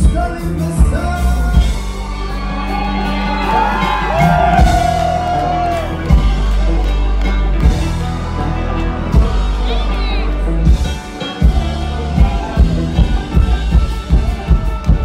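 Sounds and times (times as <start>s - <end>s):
live band playing: 0.0s - 15.0s
crowd whooping: 1.5s - 10.0s.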